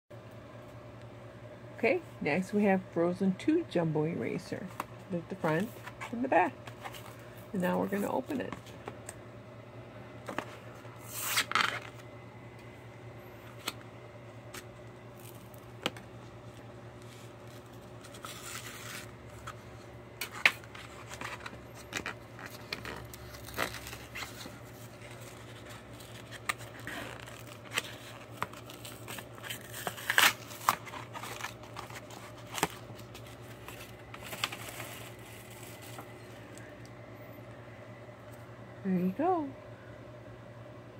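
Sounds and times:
packaging tearing and crinkling: 11.0 - 12.0, 14.6 - 16.0, 17.1 - 19.6, 20.2 - 36.1.

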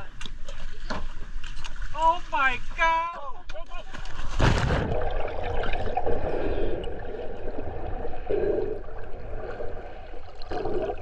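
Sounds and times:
water sloshing and gurgling: 3.7 - 11.0.

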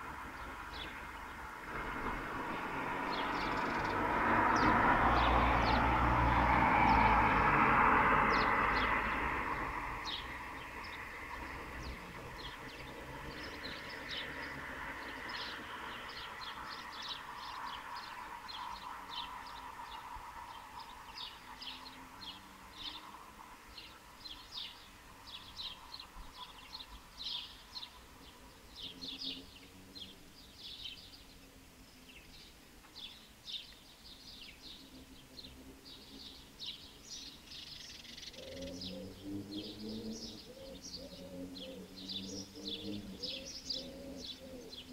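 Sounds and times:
small birds chirping: 0.0 - 7.5, 8.2 - 44.9
distant traffic: 0.0 - 44.9
pigeon cooing: 38.4 - 39.8, 40.4 - 42.1, 42.7 - 44.9.

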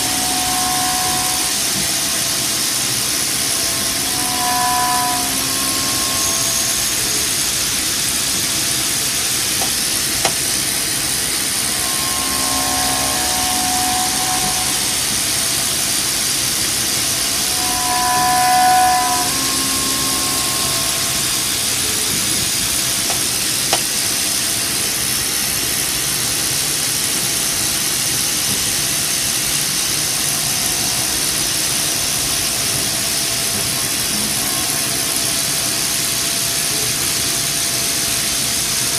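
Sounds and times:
pitched cutting tone: 0.0 - 8.1, 9.6 - 22.2
milling machine spindle hiss: 0.0 - 25.0.

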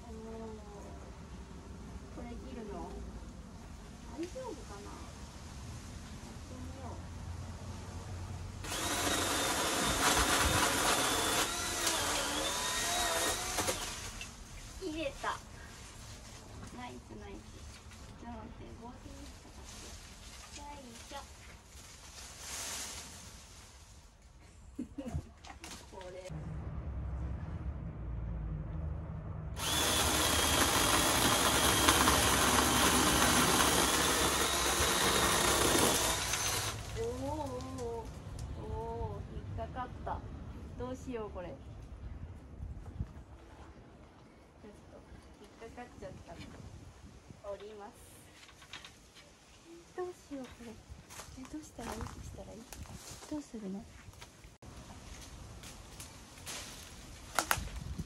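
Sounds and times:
electric chainsaw running: 8.6 - 14.2, 29.6 - 37.0
chainsaw cutting branch: 8.6 - 14.4, 29.6 - 37.8.

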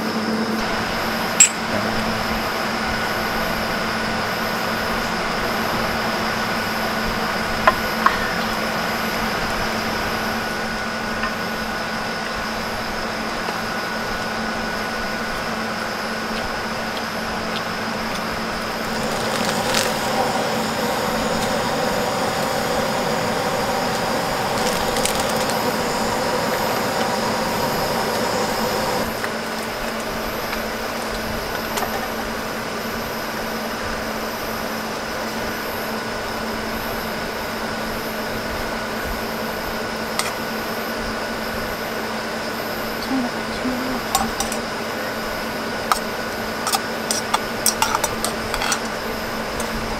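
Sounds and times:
loud droning: 0.0 - 32.7
air conditioner hum and whine: 0.0 - 49.9.

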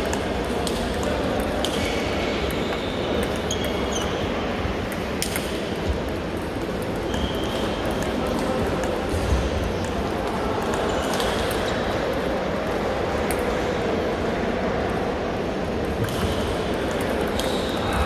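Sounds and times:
ping-pong ball clicks: 16.0 - 17.9.

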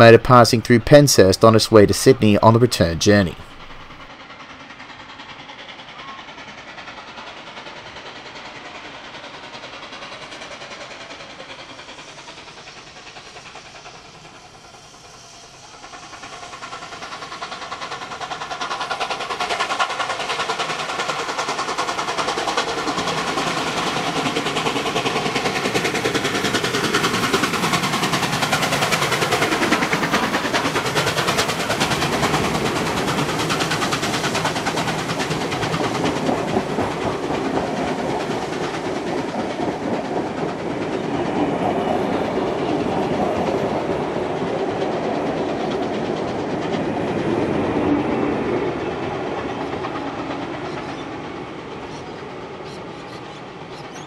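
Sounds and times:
steam locomotive passing: 0.0 - 54.0.

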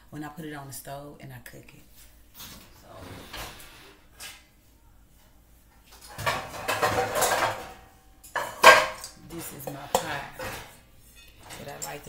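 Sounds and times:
pots and pans clattering: 6.0 - 12.0.

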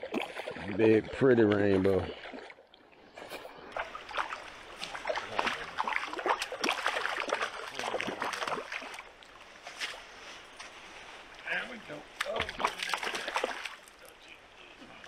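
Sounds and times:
fish splashing in water: 3.6 - 9.2, 12.2 - 14.0.

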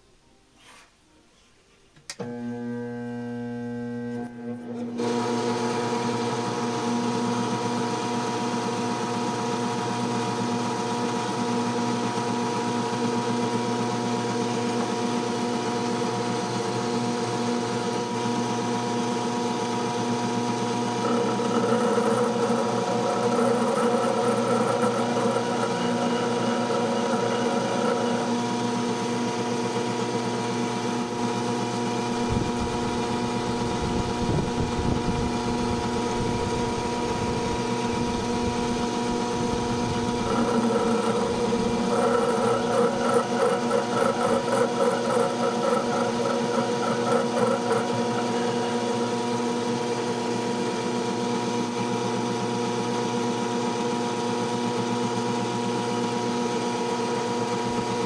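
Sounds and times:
electric motor running steadily: 5.0 - 58.0.

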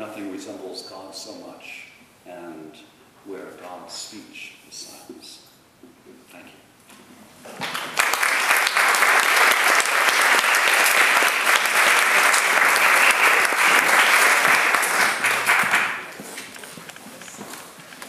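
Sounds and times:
audience applauding: 7.5 - 16.2.

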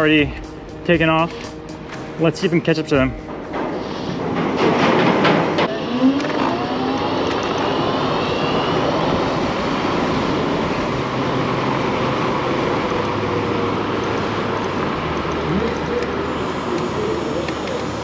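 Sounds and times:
scooter tyre noise: 3.8 - 18.0.

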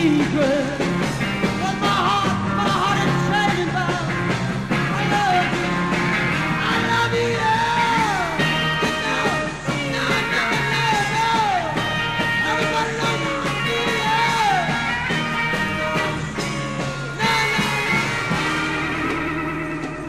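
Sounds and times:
rock band recording from vinyl: 0.0 - 20.0.

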